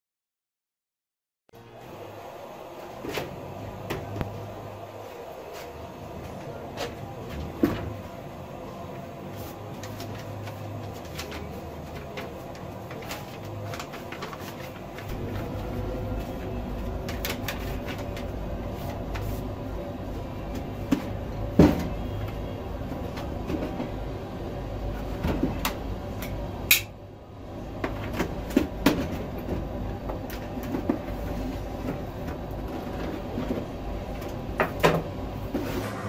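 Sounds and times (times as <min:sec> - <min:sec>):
paper rustling: 0:09.3 - 0:19.5
low hum: 0:14.8 - 0:25.0, 0:35.2 - 0:36.0.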